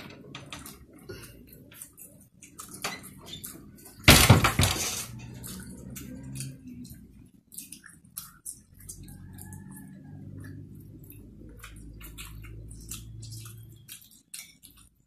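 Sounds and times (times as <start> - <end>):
loud crashing clatter: 4.0 - 5.1.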